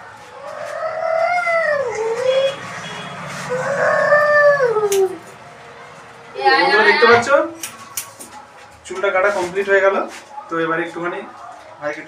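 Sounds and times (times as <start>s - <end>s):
animal crying out: 0.4s - 2.6s, 3.4s - 5.3s.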